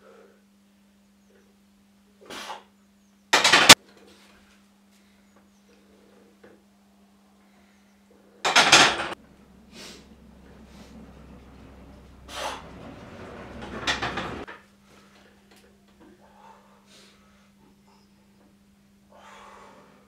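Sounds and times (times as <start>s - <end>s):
barbell scraping and clanking: 8.5s - 14.6s.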